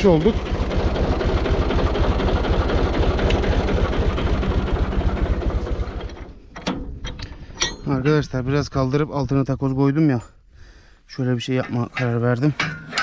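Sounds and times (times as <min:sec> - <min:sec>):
tractor engine chugging: 0:00.0 - 0:08.9.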